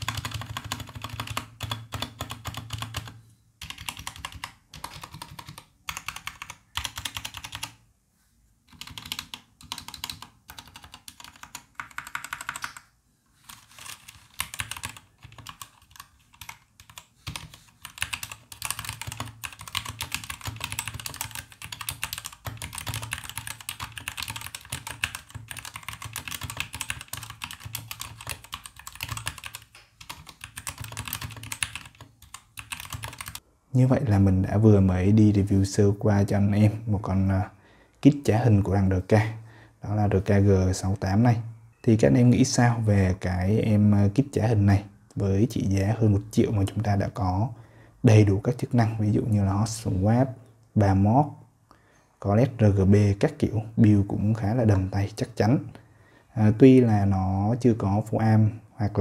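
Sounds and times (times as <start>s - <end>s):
mechanical keyboard typing: 0.0s - 7.8s, 8.7s - 12.9s, 13.5s - 33.4s.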